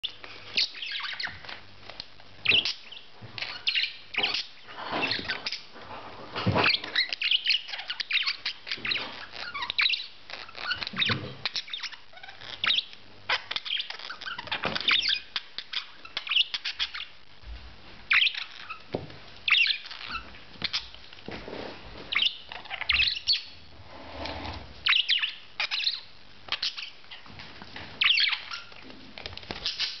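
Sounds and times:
budgerigar chirping: 0.5 - 1.4, 2.4 - 4.6, 6.9 - 17.2, 18.1 - 18.8, 19.5 - 20.9, 22.1 - 23.6, 24.8 - 27.0, 28.0 - 28.8.

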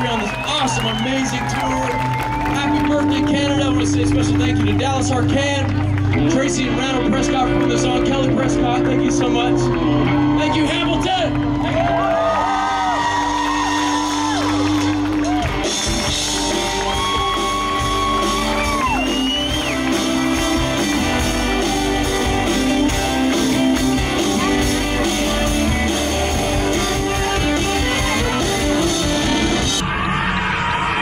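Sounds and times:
audience shouting: 0.0 - 3.3, 9.8 - 23.2
live country band playing: 0.0 - 29.8.

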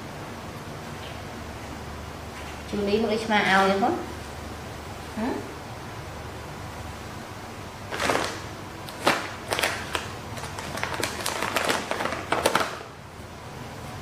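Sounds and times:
paper tissue crinkling: 7.9 - 12.9.

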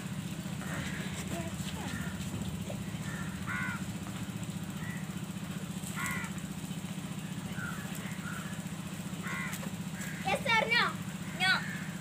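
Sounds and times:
motor humming: 0.0 - 12.0
crows cawing: 0.6 - 5.2, 5.8 - 6.4, 7.6 - 12.0.

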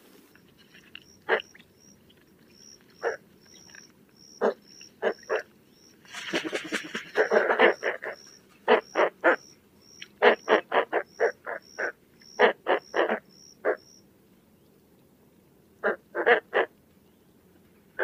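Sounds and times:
bird grunting calls: 0.4 - 13.9.

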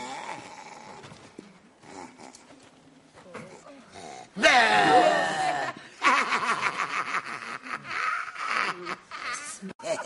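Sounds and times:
loud laughter: 4.4 - 10.0.

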